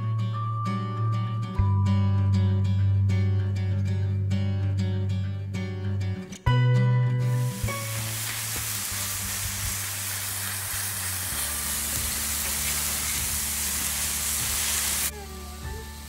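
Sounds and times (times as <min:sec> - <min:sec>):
background music: 0:00.0 - 0:16.0
sausage sizzling on a griddle: 0:07.3 - 0:16.0.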